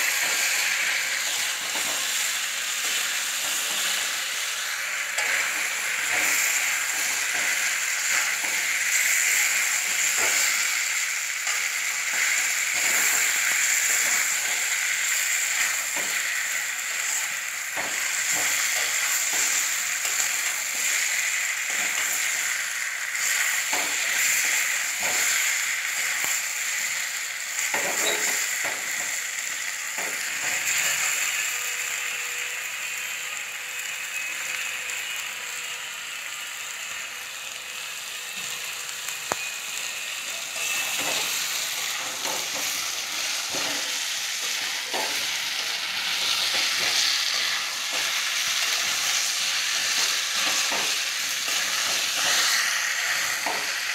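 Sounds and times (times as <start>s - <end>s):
curry sizzling in a pan: 0.0s - 53.9s
metal spatula scraping a pan: 40.4s - 53.9s.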